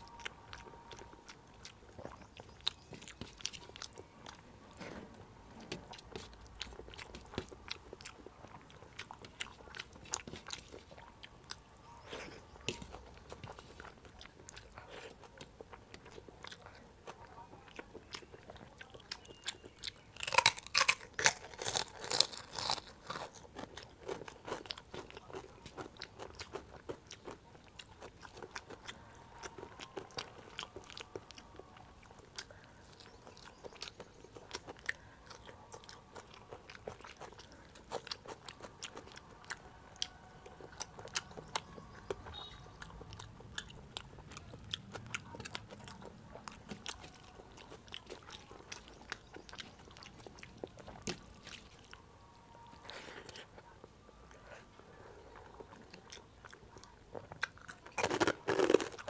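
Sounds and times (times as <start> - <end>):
wet chewing and mouth clicks: 0.0 - 5.0, 5.7 - 52.0, 52.6 - 59.0
loud crunching bites: 20.2 - 25.2, 57.4 - 59.0.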